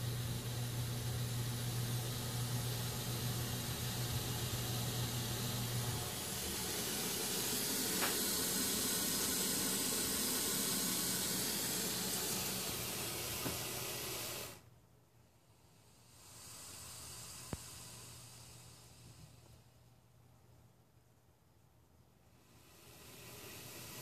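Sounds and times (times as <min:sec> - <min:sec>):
snake hissing: 0:01.6 - 0:14.6, 0:15.5 - 0:19.6, 0:22.3 - 0:24.0.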